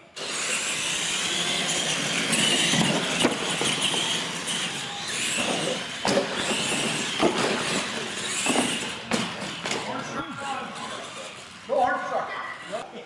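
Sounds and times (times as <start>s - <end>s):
toy truck motors whining: 0.0s - 13.0s
trucks landing with thumps: 5.2s - 10.0s.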